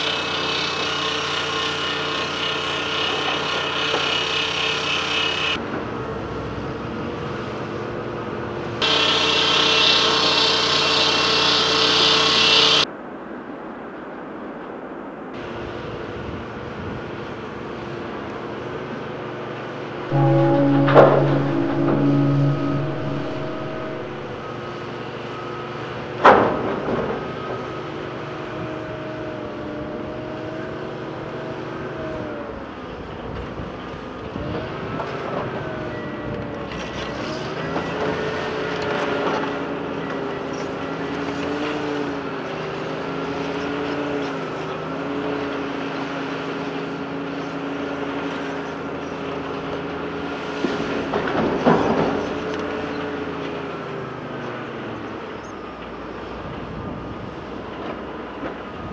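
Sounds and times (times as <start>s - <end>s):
sharp bang: 20.1s - 24.6s.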